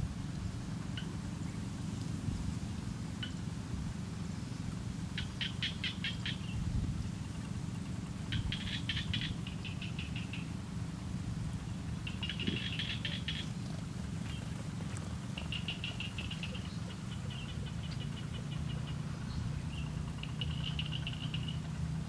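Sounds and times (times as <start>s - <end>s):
small bird chirping: 8.3s - 10.5s, 12.0s - 13.5s, 15.4s - 21.6s.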